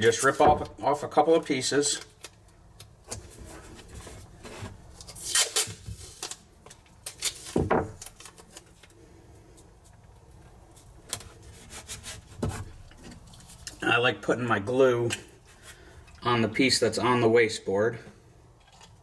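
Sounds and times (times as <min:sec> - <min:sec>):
masking tape ripping: 0:05.0 - 0:08.8.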